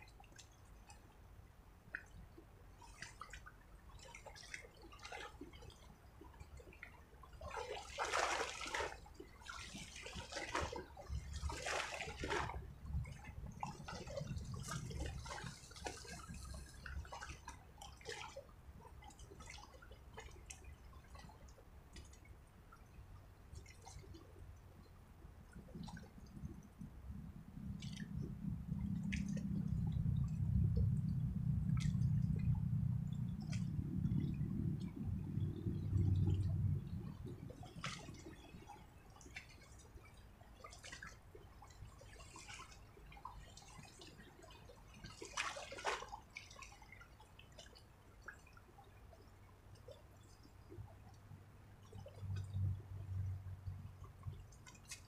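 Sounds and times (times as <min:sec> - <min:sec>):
rustling in wet grass: 0:08.0 - 0:09.0, 0:09.7 - 0:12.7
low outdoor rumble: 0:08.1 - 0:55.0.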